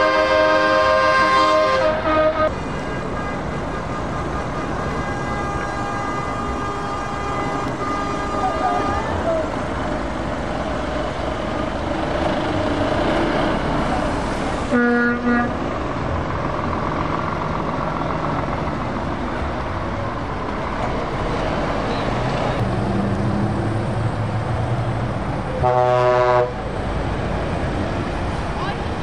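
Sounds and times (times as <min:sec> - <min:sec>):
truck horn blasts: 0:00.0 - 0:09.7, 0:14.7 - 0:15.7, 0:25.5 - 0:26.7
diesel trucks driving past: 0:00.0 - 0:29.0.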